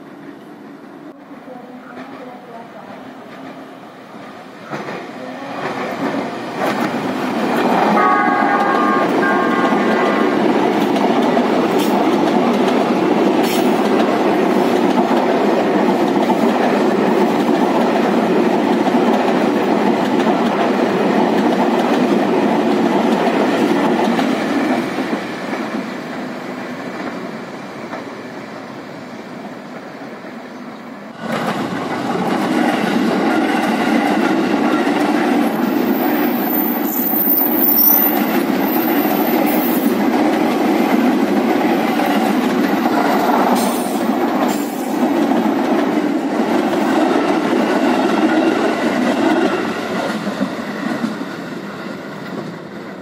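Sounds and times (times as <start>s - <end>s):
second train passing loudly: 0.0s - 53.0s
train wheels clacking over rails: 3.2s - 28.3s, 31.1s - 53.0s
train horn: 7.7s - 10.6s.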